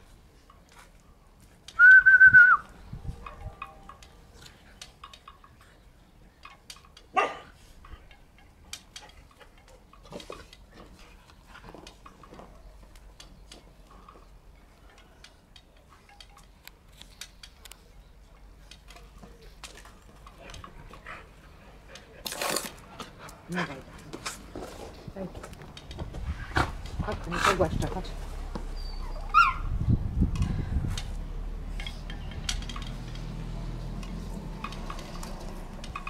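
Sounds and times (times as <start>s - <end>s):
puppy squealing: 28.8s - 29.7s
puppy yelping: 28.8s - 29.7s.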